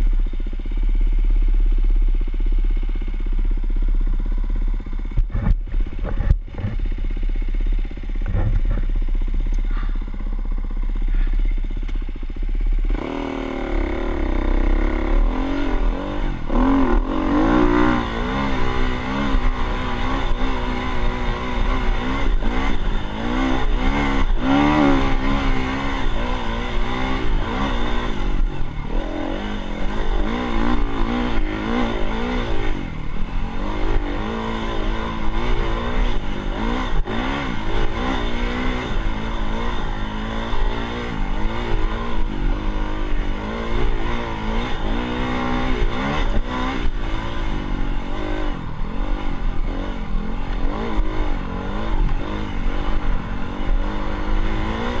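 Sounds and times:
dirt bike engine revving: 4.2s - 55.0s.

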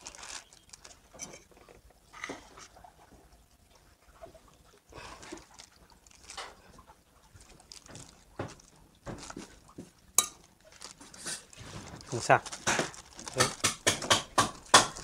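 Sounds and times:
plastic bag crinkling: 0.0s - 1.4s, 5.2s - 6.7s, 7.3s - 15.0s.

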